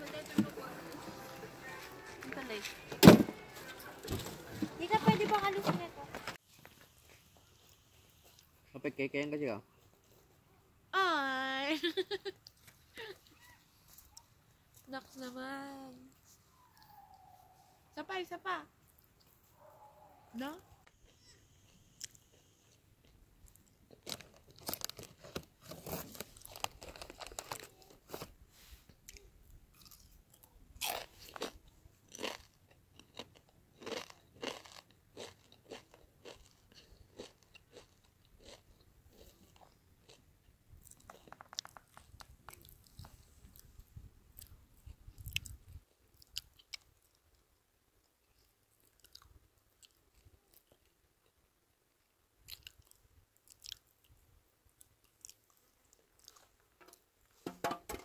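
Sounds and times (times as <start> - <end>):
person chewing crunchy food: 29.0 - 43.8, 44.4 - 47.4, 48.4 - 51.4, 52.4 - 54.1, 54.7 - 56.5.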